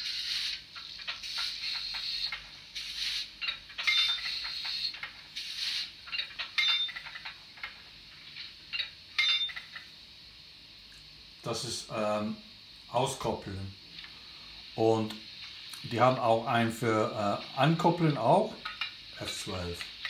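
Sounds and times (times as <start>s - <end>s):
bursts of hiss: 0.0s - 3.4s, 4.2s - 6.0s.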